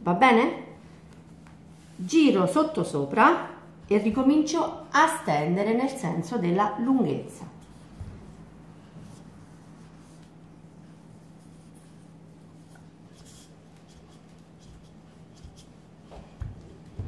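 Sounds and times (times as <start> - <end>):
steady low hum: 0.0 - 17.0
rolling pin rubbing on dough: 7.5 - 17.0.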